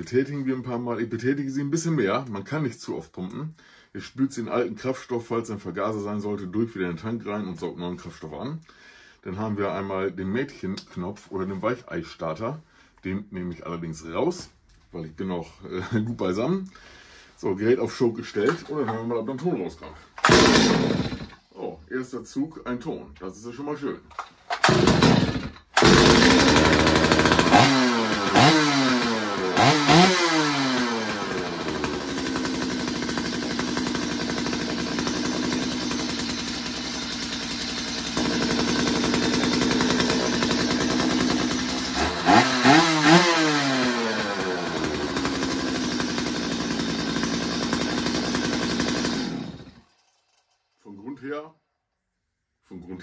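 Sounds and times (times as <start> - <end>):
chainsaw engine revving: 20.2 - 21.4, 24.5 - 50.4.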